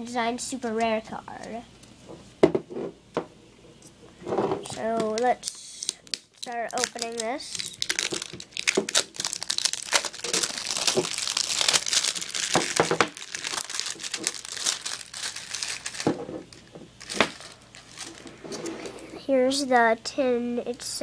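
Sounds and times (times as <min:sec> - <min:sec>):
plastic wrap tearing and crinkling: 0:04.6 - 0:18.9.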